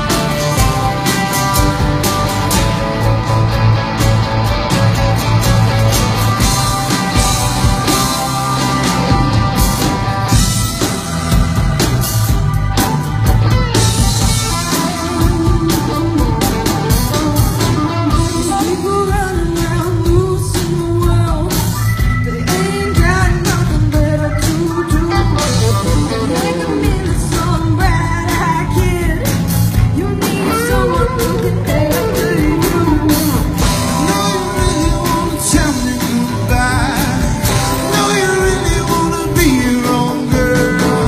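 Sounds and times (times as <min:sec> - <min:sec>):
rock band playing: 0:00.0 - 0:41.0
steady drum beat: 0:00.0 - 0:41.0
woman singing lead: 0:13.7 - 0:41.0.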